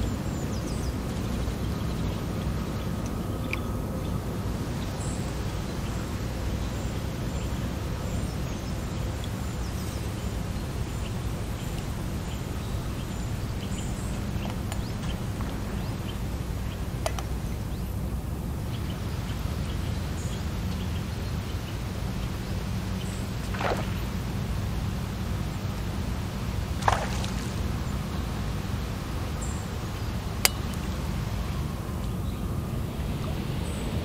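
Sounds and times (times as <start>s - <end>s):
faint ticks: 3.0s - 3.7s.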